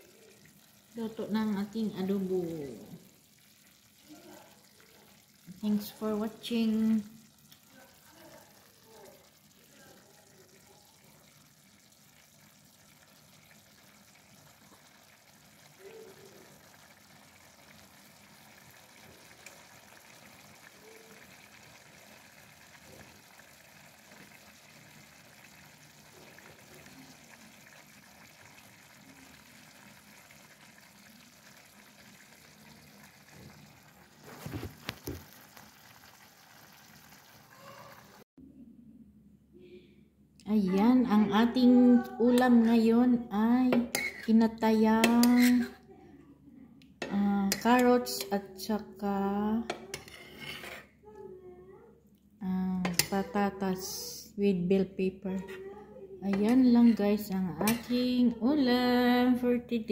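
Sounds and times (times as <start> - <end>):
food simmering in frying pan: 0.0 - 38.2, 43.7 - 45.8, 52.6 - 54.0.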